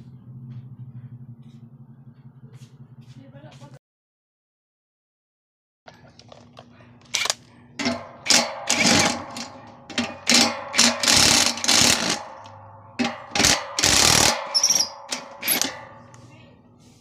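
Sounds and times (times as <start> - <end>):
power driver driving screws: 7.2 - 15.9.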